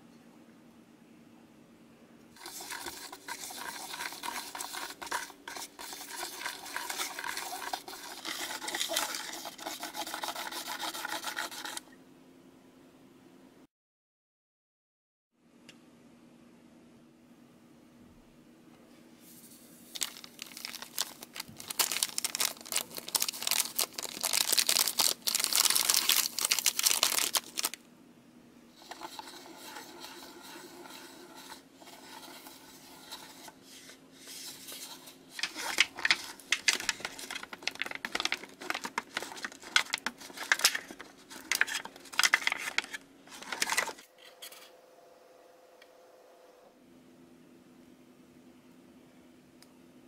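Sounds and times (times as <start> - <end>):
foil packet crinkling: 2.4 - 11.8, 19.8 - 27.8, 34.7 - 44.0
stick scraping plastic tray: 2.4 - 11.8, 28.8 - 44.6.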